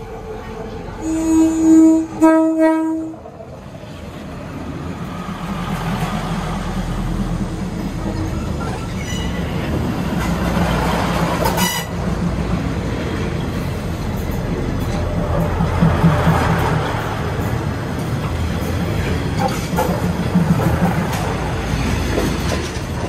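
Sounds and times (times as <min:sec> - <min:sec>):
train rumbling past: 0:00.0 - 0:23.0
train horn blast: 0:01.0 - 0:03.2, 0:11.5 - 0:12.0.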